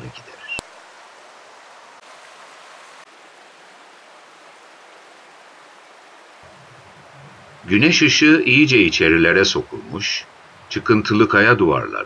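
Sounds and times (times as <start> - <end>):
stream flowing over stones: 0.0 - 12.0
low rumble: 6.4 - 11.1.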